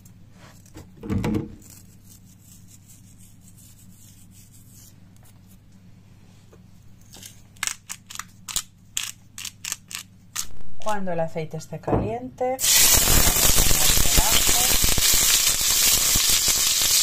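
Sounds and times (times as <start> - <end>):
low steady hum: 0.0 - 12.7.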